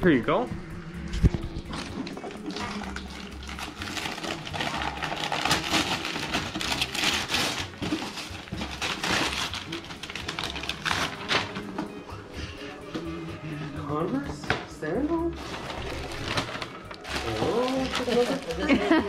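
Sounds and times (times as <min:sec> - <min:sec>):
wrapping paper rustling: 0:01.7 - 0:11.8, 0:15.4 - 0:19.0.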